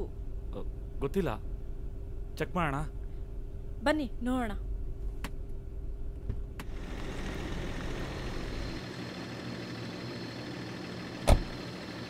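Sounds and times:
low engine rumble: 4.6 - 12.0.

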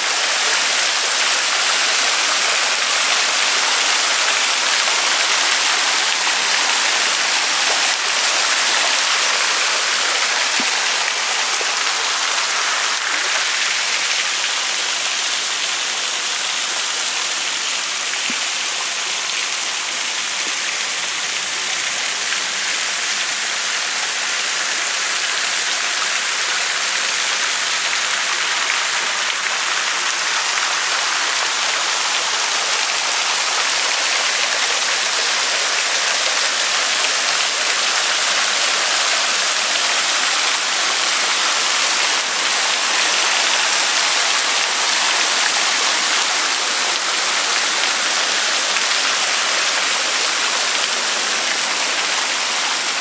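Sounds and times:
water splashing: 0.0 - 15.2, 26.2 - 53.0.

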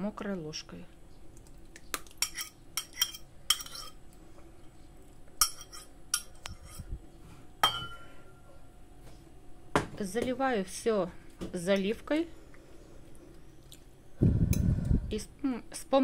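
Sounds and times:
metal spoon clinking on bowl: 2.2 - 4.0, 5.4 - 6.8, 7.6 - 8.1.

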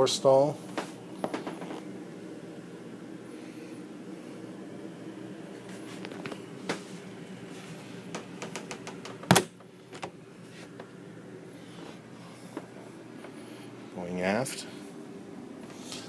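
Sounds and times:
steady low hum: 0.0 - 16.0
light clicks and knocks: 8.1 - 9.4.

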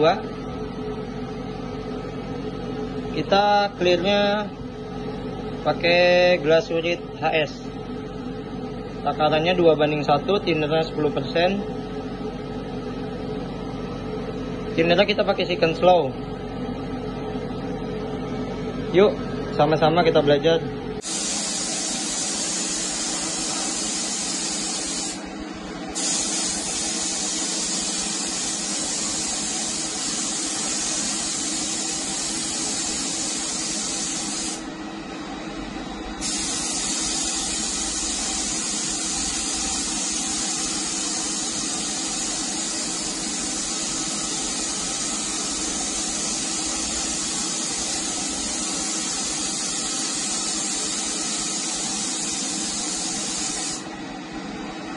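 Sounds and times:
spray gun hissing: 21.0 - 25.2, 25.9 - 34.7, 36.2 - 53.9.

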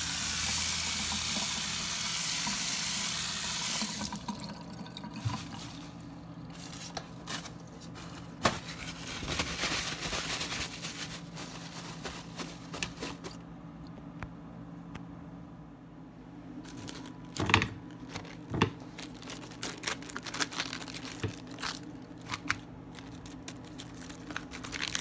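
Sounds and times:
tap water running onto vegetables: 0.0 - 6.0
water dripping: 3.7 - 5.5
paper towel rustling: 5.1 - 13.4, 16.6 - 25.0.

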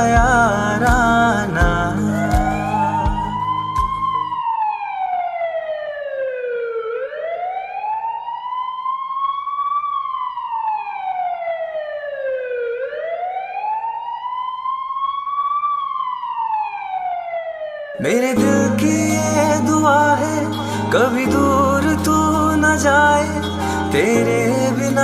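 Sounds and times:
backing music: 0.0 - 4.3, 18.3 - 25.0
siren-like wail: 1.5 - 25.0.

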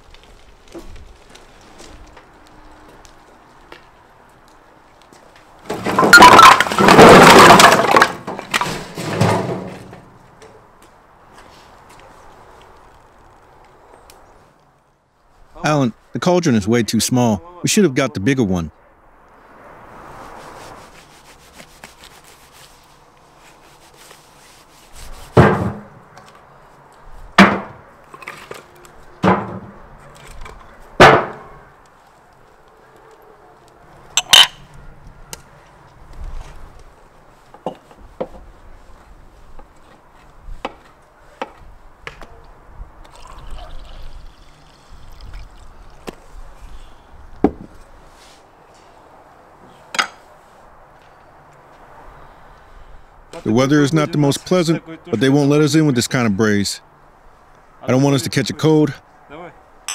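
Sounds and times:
sharp crack: 5.7 - 10.1.

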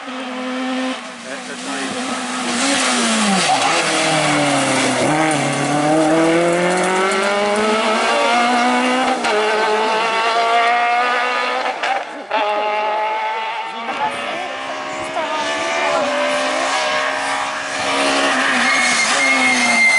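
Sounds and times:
rally car engine accelerating: 0.0 - 19.9.

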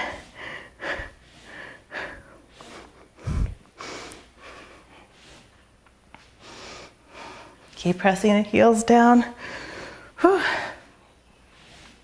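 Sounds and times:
woman breathing hard: 0.0 - 7.7, 9.4 - 12.0.

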